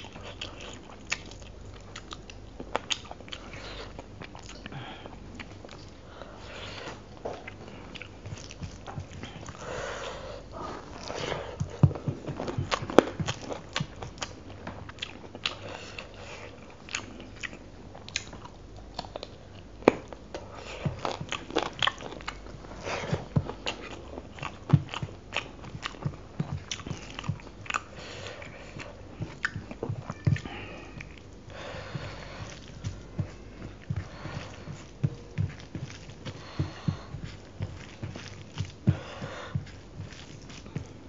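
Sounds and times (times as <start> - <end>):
chewing and wet mouth sounds: 0.0 - 41.0
fingers mixing food on steel plate: 32.2 - 41.0.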